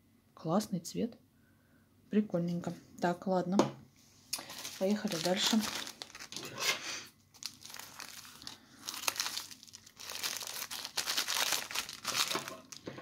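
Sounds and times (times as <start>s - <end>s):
plastic bag crinkling: 4.4s - 6.7s, 7.3s - 13.0s
scissors cutting plastic: 9.0s - 12.9s.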